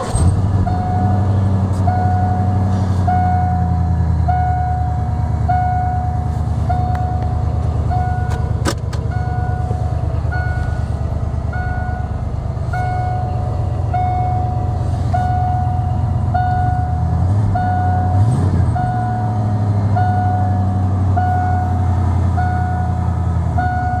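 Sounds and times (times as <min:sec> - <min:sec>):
dashboard warning chime: 0:00.0 - 0:24.0
truck engine idling: 0:00.0 - 0:24.0.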